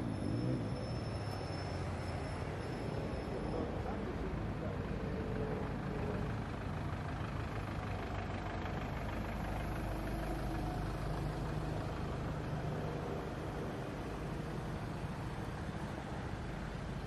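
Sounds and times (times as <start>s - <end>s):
street traffic noise: 0.0s - 17.0s
vehicle engine running: 3.7s - 17.0s.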